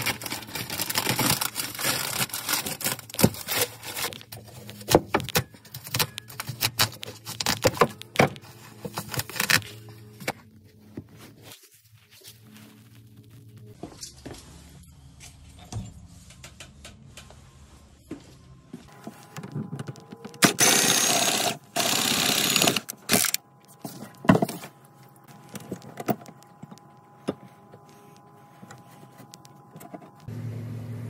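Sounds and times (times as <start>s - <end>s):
power tool cutting drywall: 20.5s - 22.8s.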